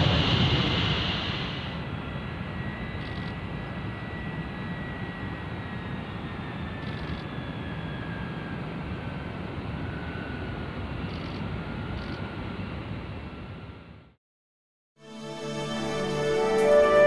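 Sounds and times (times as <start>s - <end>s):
high whine falling in pitch: 0.0s - 3.1s
jet engines roaring: 0.0s - 13.2s.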